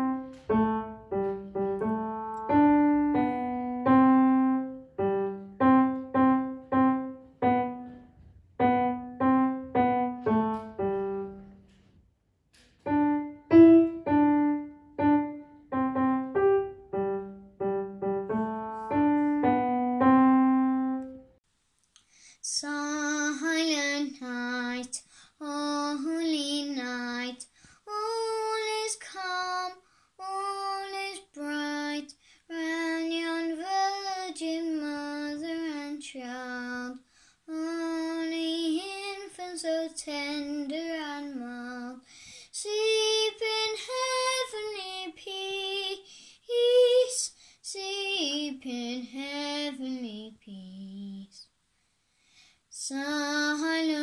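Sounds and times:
boy singing unaccompanied: 22.4s - 51.5s, 52.7s - 54.0s.

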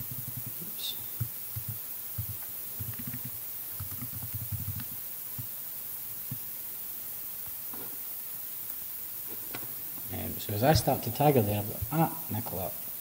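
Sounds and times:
computer keyboard typing: 0.0s - 0.6s, 1.2s - 5.0s.

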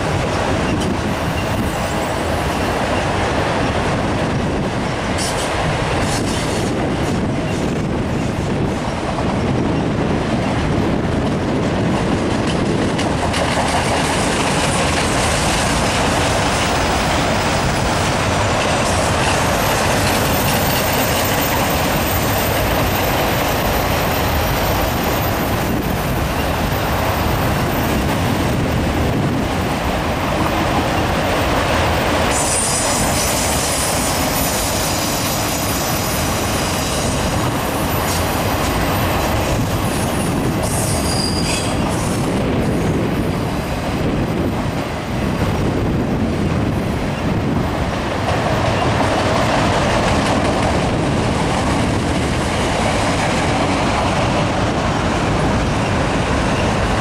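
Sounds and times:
train wheels rumbling on rails: 0.0s - 57.0s
high wheel squeal: 18.8s - 26.6s, 32.3s - 38.3s, 39.8s - 42.2s.

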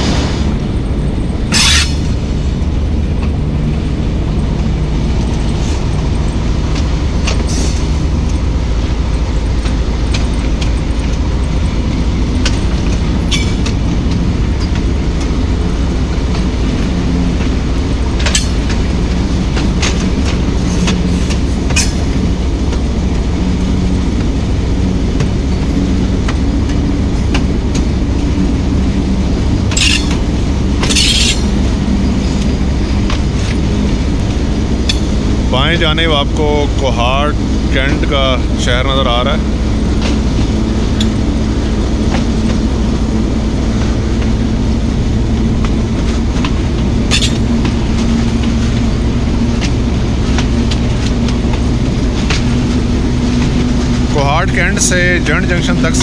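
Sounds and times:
diesel locomotive engine drone: 0.0s - 56.0s
train rattling: 0.0s - 56.0s
short high squeals: 1.5s - 2.1s.

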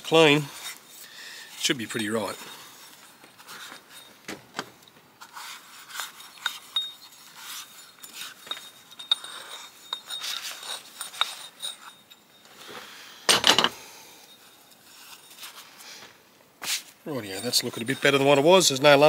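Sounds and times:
metal parts clinking: 5.9s - 12.6s, 13.3s - 15.5s.

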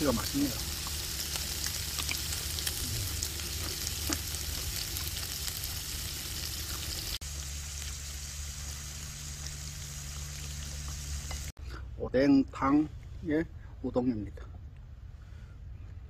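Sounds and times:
meat sizzling on a grill: 0.0s - 11.6s
low hum: 0.5s - 12.0s.

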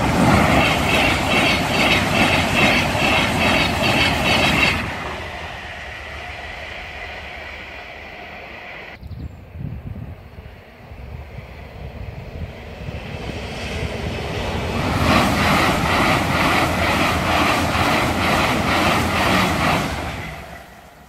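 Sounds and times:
train passing with wheel beats: 0.0s - 21.0s.

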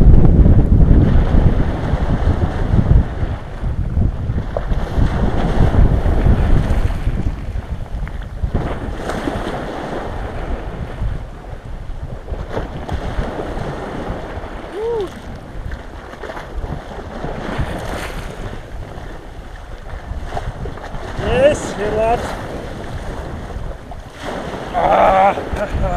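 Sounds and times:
wind buffeting microphone: 0.0s - 25.9s
small waves washing on shore: 0.9s - 25.9s
water sloshing from wading: 12.5s - 25.9s
brief high cry: 14.7s - 15.2s.

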